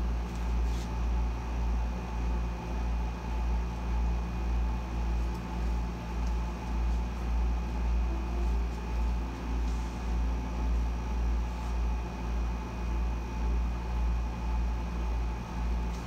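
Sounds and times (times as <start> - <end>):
air conditioner humming: 0.0 - 16.0.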